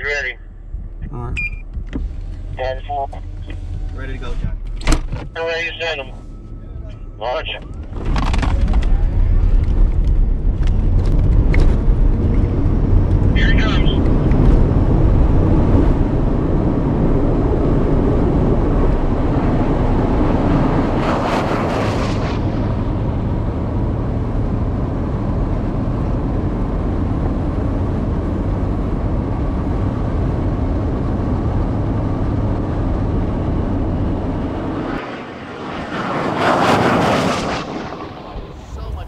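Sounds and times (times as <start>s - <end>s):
wind and tyre roar in cabin: 0.0s - 39.0s
car passing by rushing: 11.1s - 39.0s.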